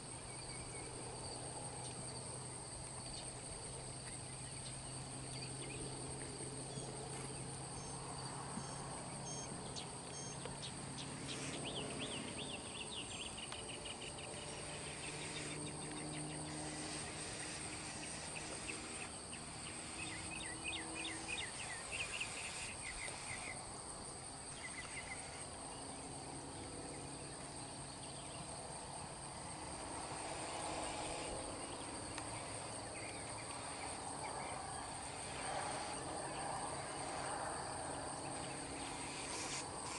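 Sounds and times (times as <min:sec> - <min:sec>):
insect chorus drone: 0:00.0 - 0:39.9
bird chirping: 0:08.6 - 0:23.6, 0:24.5 - 0:25.9.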